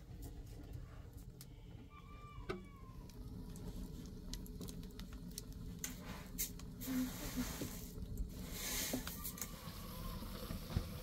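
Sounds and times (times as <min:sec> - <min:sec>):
wood fire crackling: 0:00.0 - 0:11.0
hiss: 0:05.8 - 0:11.0.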